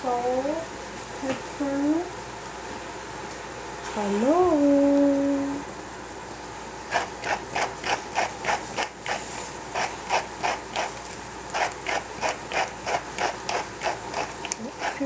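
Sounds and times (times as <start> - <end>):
seasoning dispenser clicking: 9.8 - 15.0.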